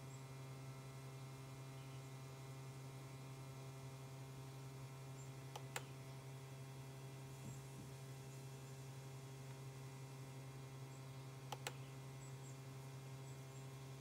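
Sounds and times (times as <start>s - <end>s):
low electrical hum: 0.0s - 14.0s
laptop touchpad button clicks: 11.5s - 11.8s.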